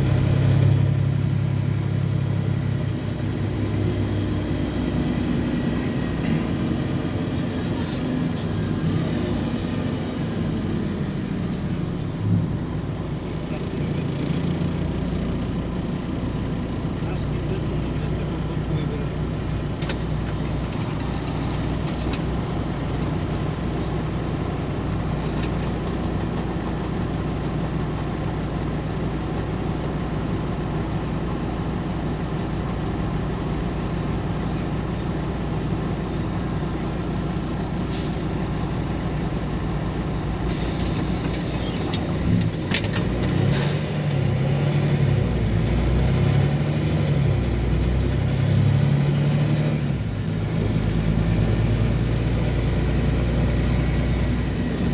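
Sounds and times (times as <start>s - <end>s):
bus diesel engine: 0.0s - 54.9s
compressed air hisses: 37.5s - 38.6s, 40.5s - 42.1s.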